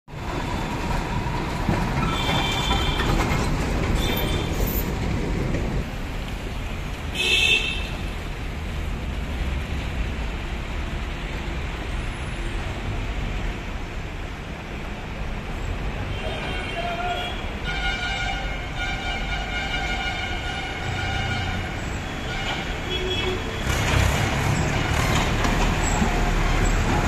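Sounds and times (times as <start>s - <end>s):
vehicle horns tooting: 2.1s - 3.2s, 7.1s - 8.0s, 16.1s - 23.9s
dump truck engine rumbling: 18.4s - 27.0s.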